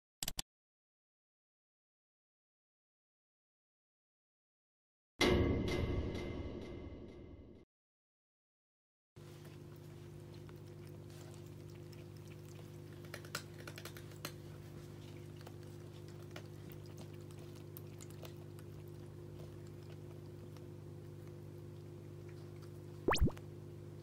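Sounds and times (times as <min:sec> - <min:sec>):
cat lapping water: 0:09.2 - 0:23.4
water fountain pump humming: 0:09.2 - 0:24.0.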